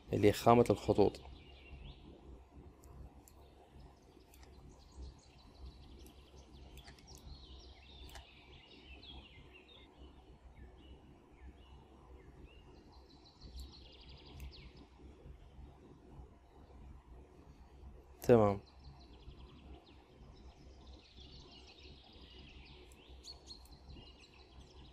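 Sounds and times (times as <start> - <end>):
faint birds chirping: 0.0 - 24.9
low steady hum: 0.0 - 24.9
faint clicks: 4.2 - 4.6, 6.0 - 7.4, 8.0 - 8.3, 13.5 - 14.6.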